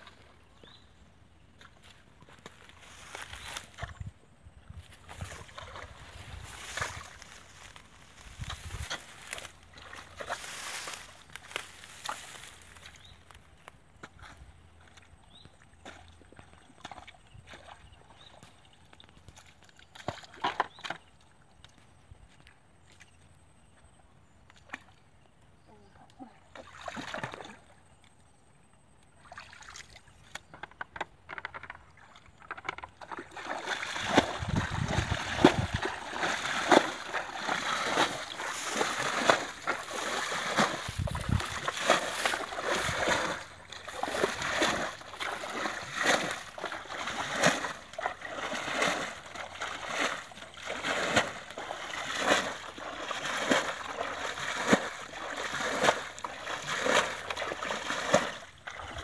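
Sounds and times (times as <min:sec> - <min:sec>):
water scooping and splashing: 0:26.5 - 0:27.6, 0:32.0 - 0:59.0.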